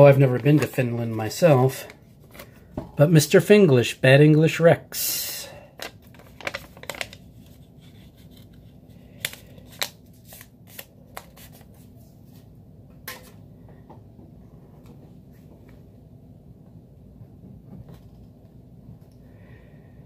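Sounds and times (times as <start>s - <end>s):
paper sticky notes rustling: 6.2s - 11.9s.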